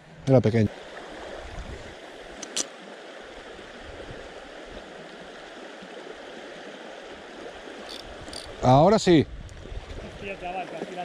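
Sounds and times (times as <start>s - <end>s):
river rushing over stones: 10.0s - 11.0s.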